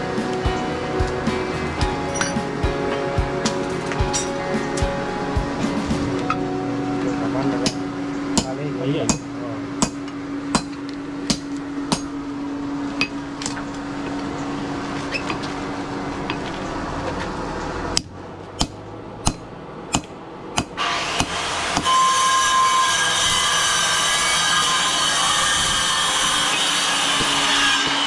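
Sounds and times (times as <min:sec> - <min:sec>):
steady hum: 0:00.0 - 0:21.8
hammer ringing on anvil: 0:07.5 - 0:10.7.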